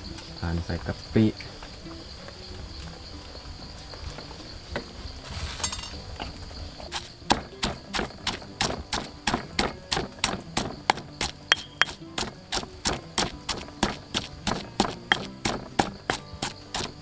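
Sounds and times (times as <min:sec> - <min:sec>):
high insect drone: 0:00.0 - 0:17.0
knocks and clinks: 0:05.6 - 0:06.0, 0:11.5 - 0:12.0
pestle pounding in a mortar: 0:07.3 - 0:17.0.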